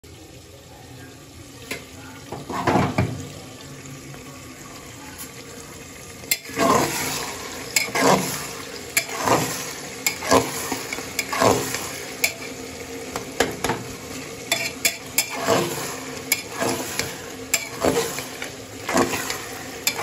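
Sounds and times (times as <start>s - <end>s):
onions sizzling in oil: 0.1s - 20.0s
spatula scraping pot: 6.3s - 12.6s, 14.4s - 20.0s.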